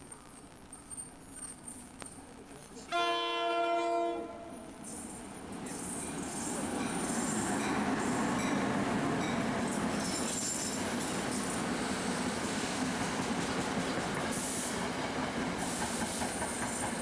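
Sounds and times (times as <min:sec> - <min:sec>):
train running past: 0:01.8 - 0:17.0
train horn blast: 0:02.9 - 0:04.7.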